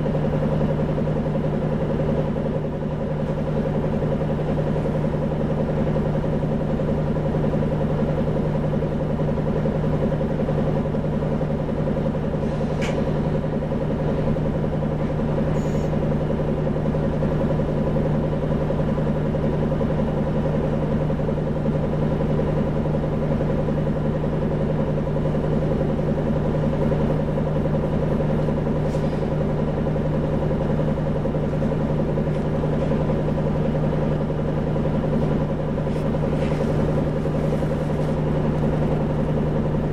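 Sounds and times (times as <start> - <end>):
bus engine humming: 0.0 - 39.9.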